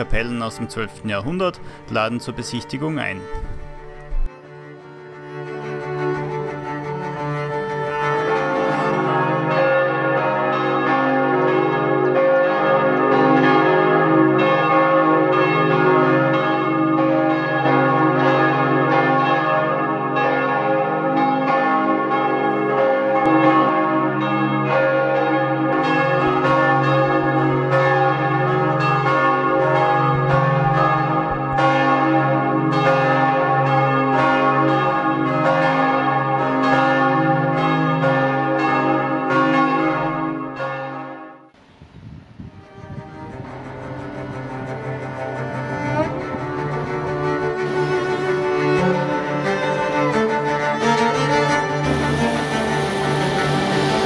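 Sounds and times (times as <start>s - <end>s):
church bells pealing: 0.0s - 4.0s, 5.0s - 41.6s, 42.5s - 54.0s.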